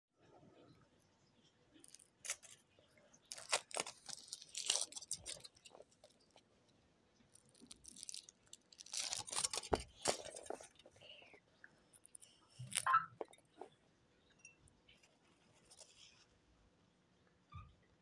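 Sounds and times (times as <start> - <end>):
foil wrapper crinkling and tearing: 1.8 - 6.5, 7.3 - 11.3.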